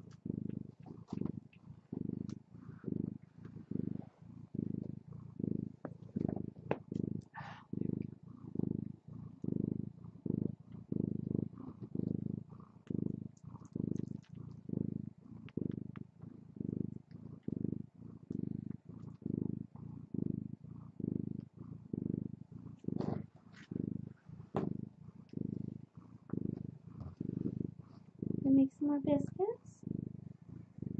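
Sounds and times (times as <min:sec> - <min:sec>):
cat purring: 0:00.0 - 0:30.9
faint clicks: 0:15.4 - 0:16.2.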